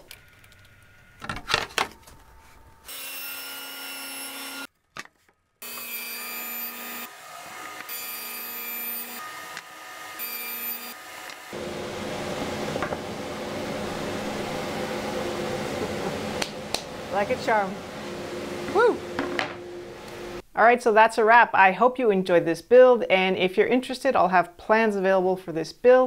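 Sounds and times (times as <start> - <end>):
table saw cutting board: 2.4 - 4.7, 5.6 - 20.4.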